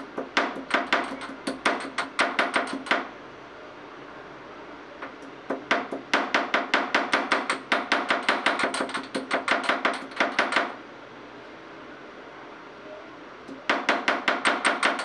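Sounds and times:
sharp metallic knocks: 0.0s - 3.1s, 5.5s - 10.8s, 13.5s - 15.0s.

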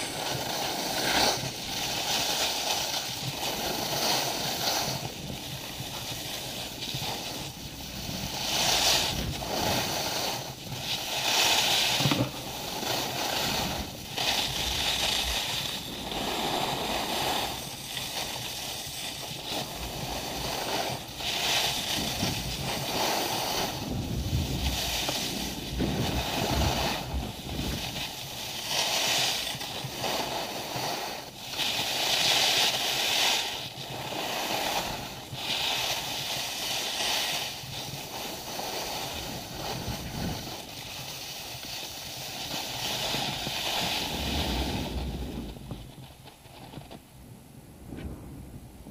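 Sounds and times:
wind on microphone: 0.0s - 28.7s, 37.3s - 40.9s, 42.2s - 48.9s
skis scraping over snow: 0.0s - 47.0s.

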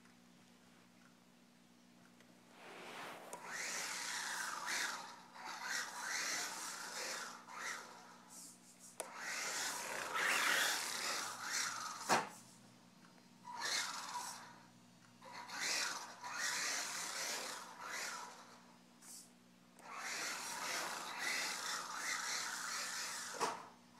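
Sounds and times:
gear and tyre hiss: 2.4s - 4.6s
toy car electric motor whining: 3.4s - 12.5s, 13.4s - 23.7s.

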